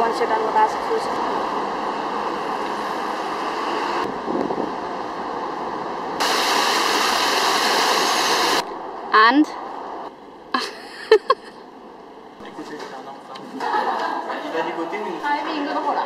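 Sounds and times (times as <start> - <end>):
street traffic noise: 0.0 - 16.0.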